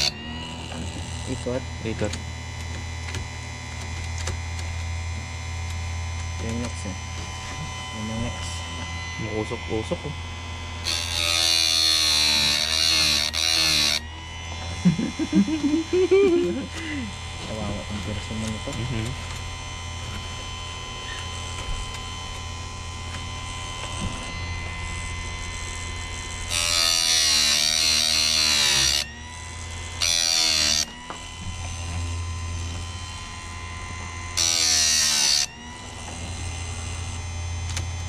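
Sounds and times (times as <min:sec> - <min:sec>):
grinding wheel on chain: 0:00.0 - 0:02.2, 0:10.8 - 0:19.2, 0:23.8 - 0:37.9
sharpener motor humming: 0:00.0 - 0:38.0.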